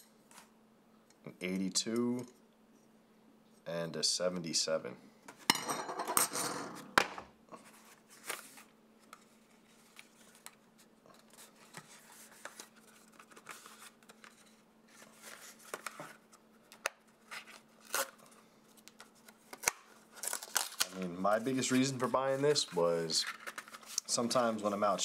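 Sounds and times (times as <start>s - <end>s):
faint steady hum: 0.0s - 25.0s
cardboard packaging rustling: 7.6s - 16.3s, 17.0s - 24.4s.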